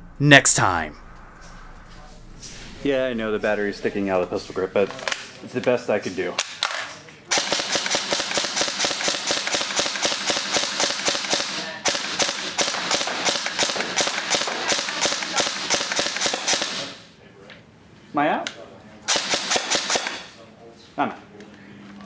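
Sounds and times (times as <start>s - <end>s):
airsoft gun rapid fire: 7.3s - 17.0s, 19.1s - 20.3s.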